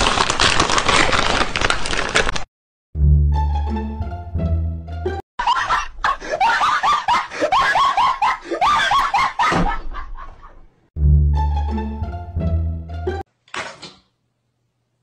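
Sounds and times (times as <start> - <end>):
shrill screaming laughter: 5.4 - 10.6.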